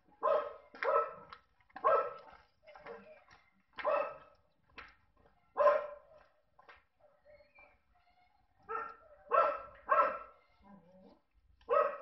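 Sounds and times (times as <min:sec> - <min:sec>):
dog barking: 0:00.2 - 0:02.3, 0:03.8 - 0:04.3, 0:05.6 - 0:06.2, 0:08.6 - 0:10.4, 0:11.6 - 0:12.0.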